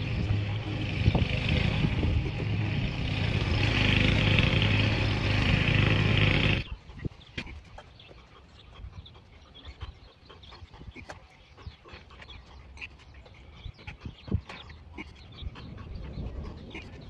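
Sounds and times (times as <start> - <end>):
motor drone: 0.0 - 6.9.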